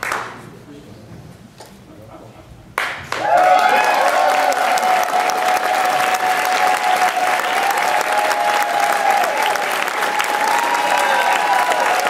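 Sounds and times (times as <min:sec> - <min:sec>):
audience applauding: 0:02.8 - 0:12.0
sustained high cheer: 0:03.1 - 0:12.0.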